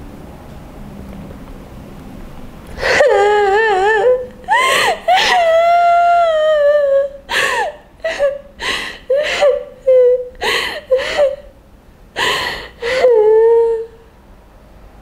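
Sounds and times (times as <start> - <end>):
woman crying and wailing: 2.8 - 11.5, 12.2 - 14.0
catches of breath: 7.3 - 9.6, 10.4 - 11.5, 12.2 - 13.1.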